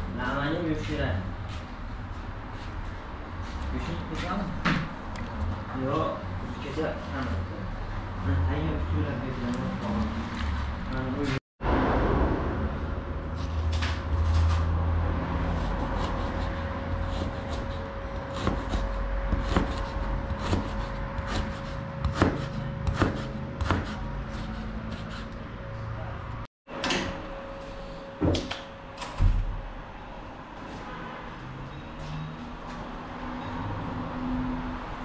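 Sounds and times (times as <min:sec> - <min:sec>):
low rumble: 0:11.6 - 0:17.1.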